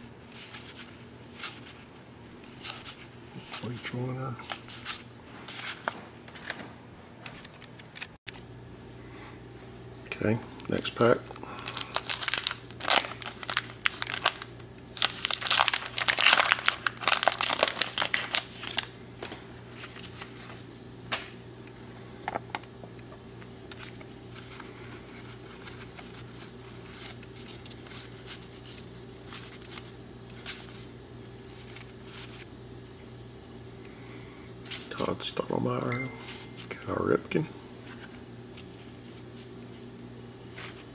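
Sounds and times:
paper wrapper tearing and crinkling: 10.6 - 19.0.

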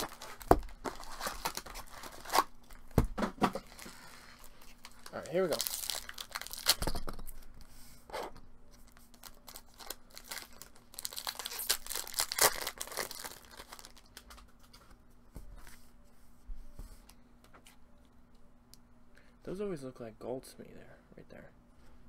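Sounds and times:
card pack wrappers tearing and crinkling: 0.0 - 2.8, 3.7 - 7.0, 8.9 - 14.4.

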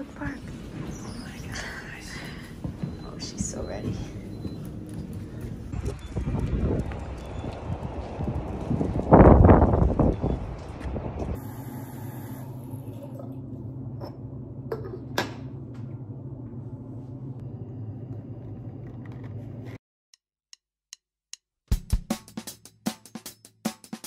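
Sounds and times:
low room hum: 0.0 - 5.8, 11.4 - 19.8
city street rumble: 0.0 - 11.5.

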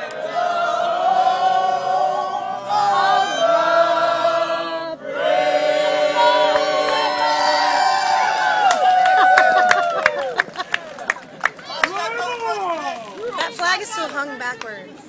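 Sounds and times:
group of voices chanting: 0.0 - 8.6.

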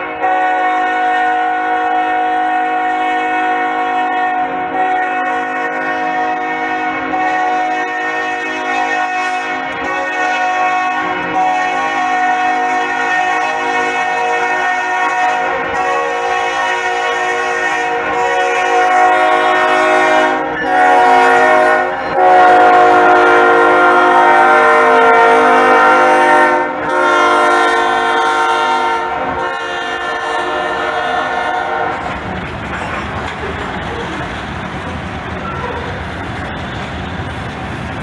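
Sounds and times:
locomotive air horn blasts: 0.0 - 32.0
freight cars rumbling and clattering: 31.8 - 38.0.

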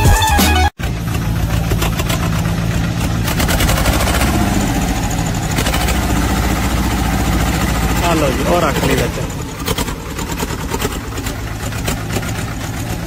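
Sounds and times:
diesel tractor engine running: 0.2 - 13.0.

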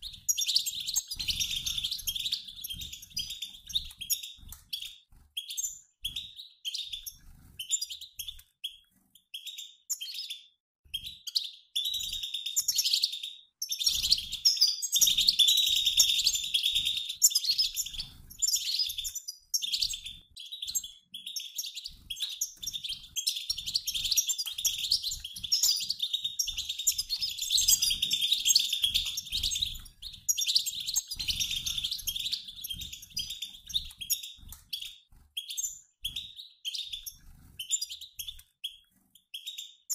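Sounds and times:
goldfinches twittering: 0.0 - 8.8, 11.3 - 39.9.

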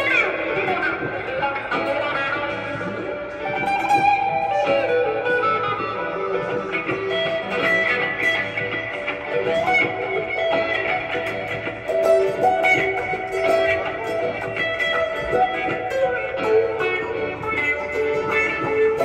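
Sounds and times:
amplified acoustic guitar melody: 0.0 - 19.0.

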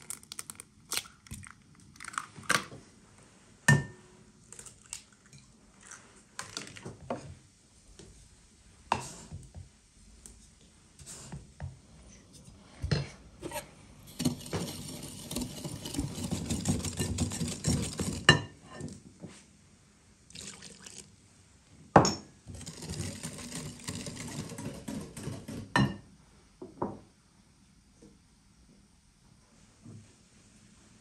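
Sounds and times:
whisk beating batter: 14.1 - 18.4, 22.5 - 25.8
whisk clinking against glass: 14.1 - 18.5.

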